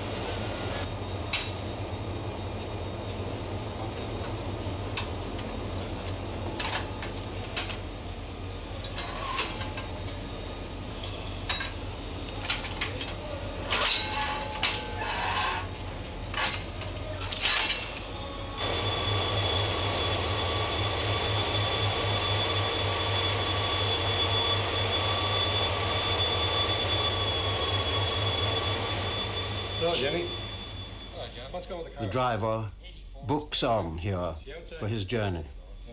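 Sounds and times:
low workshop hum: 0.0 - 35.9
thin high whine: 0.0 - 35.9
metal clinks and knocks: 11.0 - 18.1.

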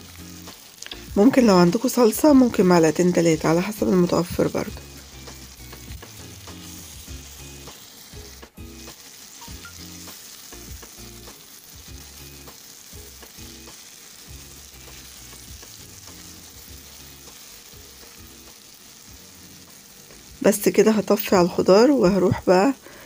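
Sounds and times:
vegetables sizzling in a pan: 0.0 - 23.0.

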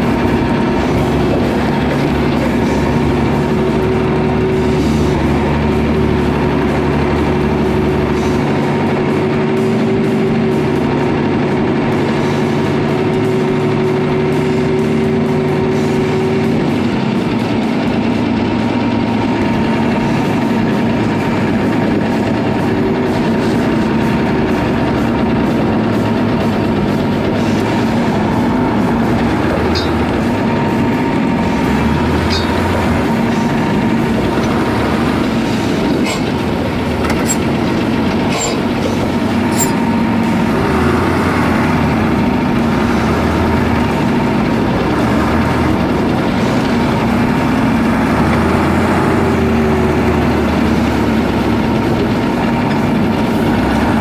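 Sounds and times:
diesel truck engine running: 0.0 - 54.0
vehicle rattle: 0.0 - 54.0
sharp clicks and knocks: 32.2 - 39.9.

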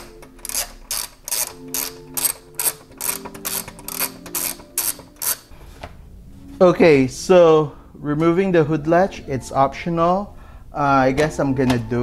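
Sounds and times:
ratchet wrench clicking: 0.0 - 5.5.

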